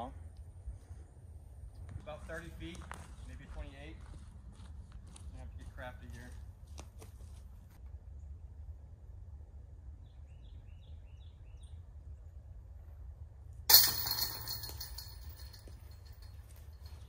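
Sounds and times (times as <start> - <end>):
disc hitting metal chains: 13.7 - 17.0.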